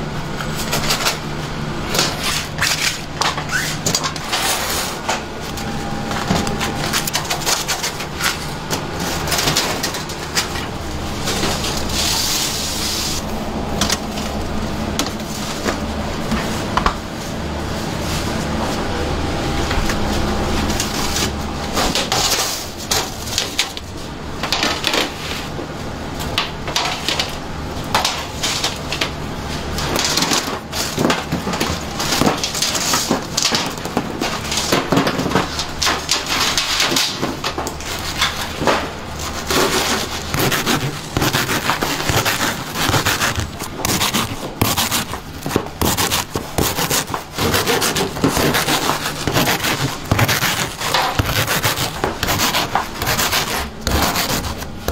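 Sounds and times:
low hum: 0:02.6 - 0:21.9.

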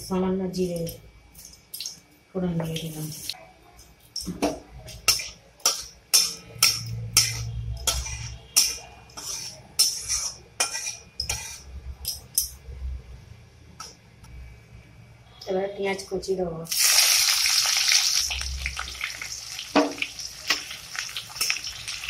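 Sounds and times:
metal spatula scraping a pan: 0:05.0 - 0:12.2
spices sizzling in hot oil: 0:16.7 - 0:22.0.

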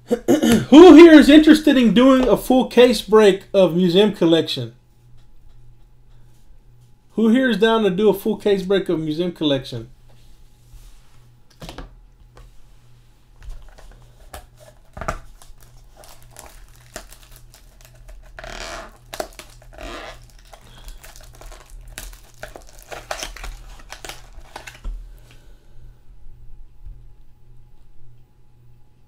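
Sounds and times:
plastic wrap crinkling and tearing: 0:13.4 - 0:25.3.

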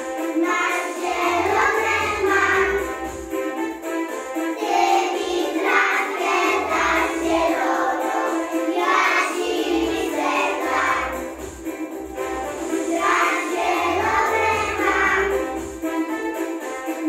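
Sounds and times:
children singing in chorus: 0:00.3 - 0:02.9, 0:04.6 - 0:11.3, 0:12.8 - 0:15.6.

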